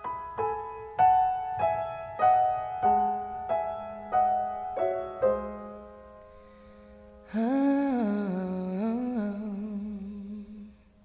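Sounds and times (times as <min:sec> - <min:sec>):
slow piano notes and chords: 0:00.0 - 0:11.0.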